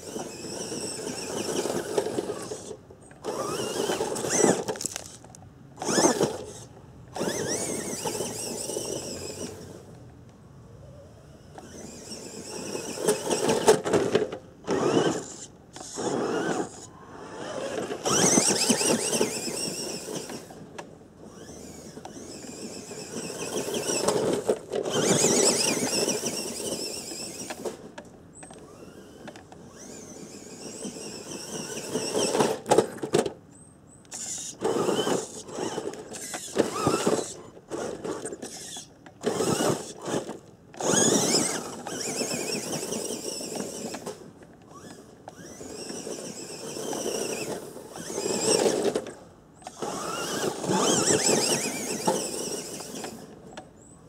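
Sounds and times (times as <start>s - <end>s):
electric motor whining: 5.8s - 9.8s, 14.6s - 20.5s, 21.3s - 27.7s, 34.1s - 49.0s, 49.6s - 53.2s.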